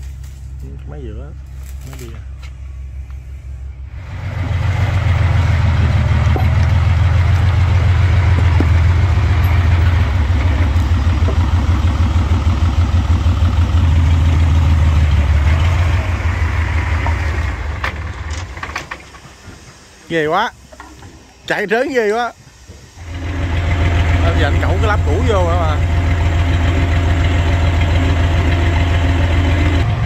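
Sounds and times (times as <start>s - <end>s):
large diesel engine revving: 3.4s - 19.2s, 23.0s - 30.0s.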